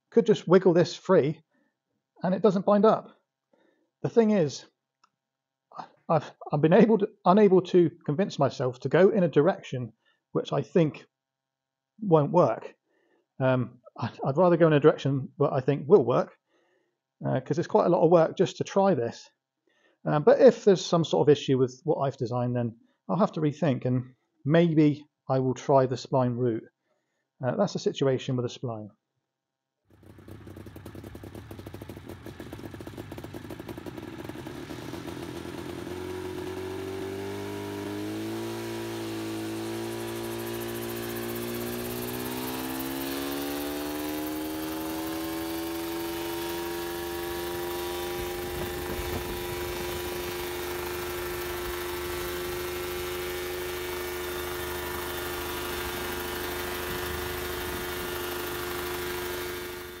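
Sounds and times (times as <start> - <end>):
helicopter engine and rotors spinning: 29.9 - 60.0.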